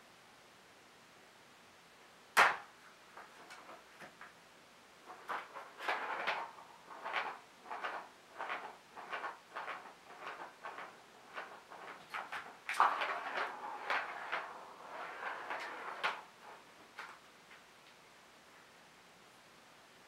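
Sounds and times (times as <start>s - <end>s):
ball rolling around plastic track: 2.3s - 17.7s.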